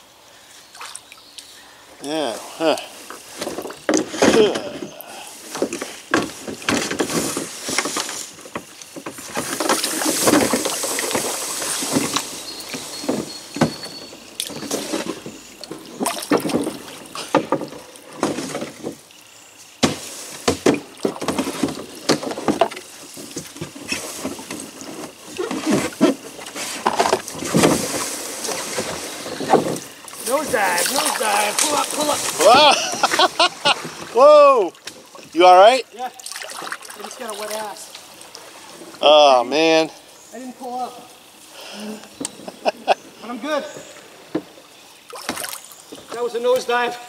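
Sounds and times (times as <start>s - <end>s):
knocks and scrapes of kayak: 3.0s - 19.1s, 19.8s - 35.8s
water sloshing: 3.0s - 19.2s, 20.0s - 39.1s, 42.2s - 46.7s.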